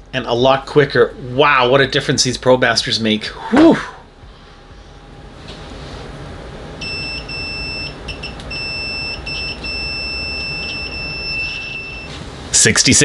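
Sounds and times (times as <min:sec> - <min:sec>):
high-pitched multimeter beep tone: 0:06.8 - 0:12.2.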